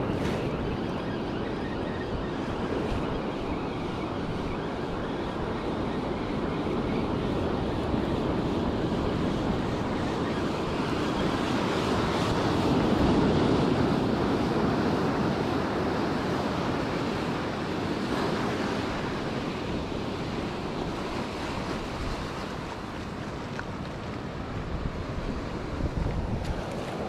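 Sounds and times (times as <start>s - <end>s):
wind on microphone: 0.0s - 27.0s
ocean surf breaking: 8.4s - 27.0s.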